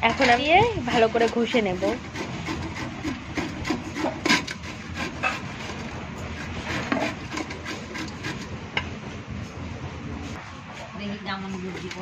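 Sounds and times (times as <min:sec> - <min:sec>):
grater rasping: 0:00.0 - 0:08.6.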